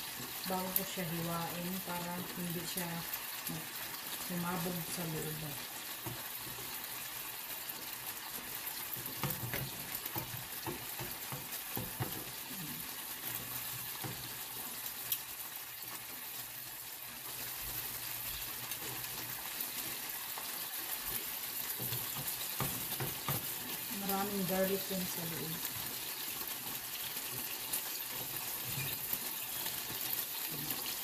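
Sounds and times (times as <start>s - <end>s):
sausages sizzling in a frying pan: 0.0s - 31.0s.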